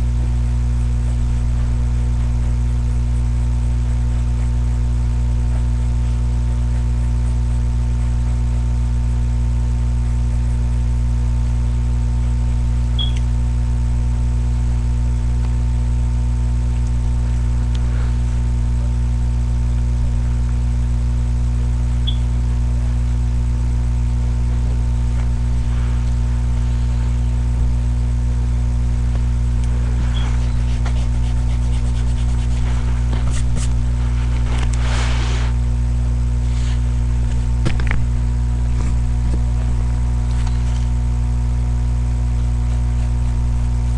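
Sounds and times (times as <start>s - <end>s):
electrical hum and buzz: 0.0s - 43.9s
faint rustling: 25.1s - 27.4s, 29.7s - 35.6s.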